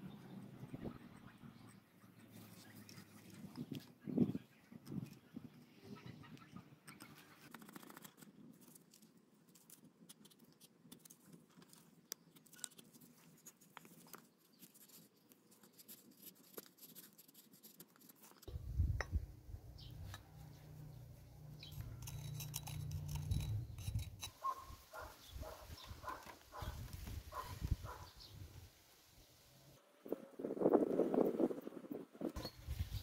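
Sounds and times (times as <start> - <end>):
steady low rumble: 18.5 - 20.0
knife scraping wooden handle: 21.6 - 25.1.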